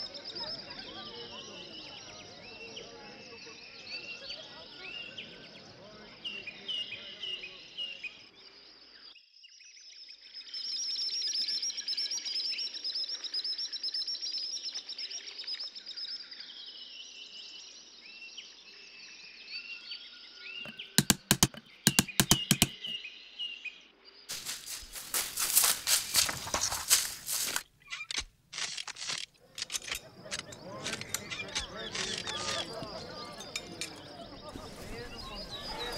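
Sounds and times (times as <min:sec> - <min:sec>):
small birds chirping: 0:20.3 - 0:28.7, 0:29.3 - 0:35.9
sharp clicks: 0:20.7 - 0:22.9, 0:26.2 - 0:32.7
crackling and rustling: 0:24.3 - 0:33.0
high trilling bird chorus: 0:30.0 - 0:35.9.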